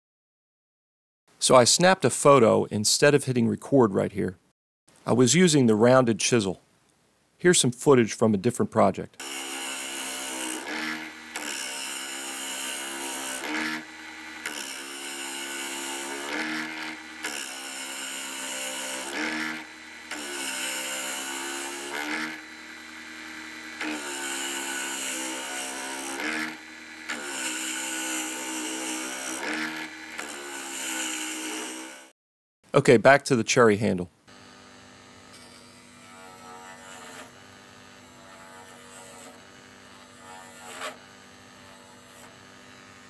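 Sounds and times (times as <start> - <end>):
lathe motor running: 9.2 - 32.1, 34.3 - 43.0.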